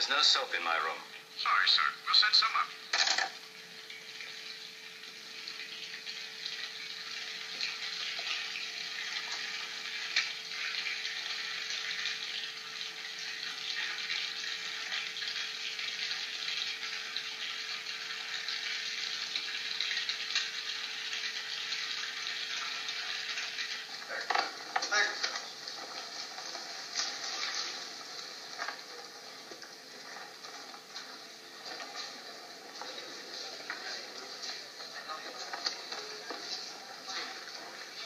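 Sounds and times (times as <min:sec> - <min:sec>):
hiss with light crackle: 0:00.0 - 0:38.0.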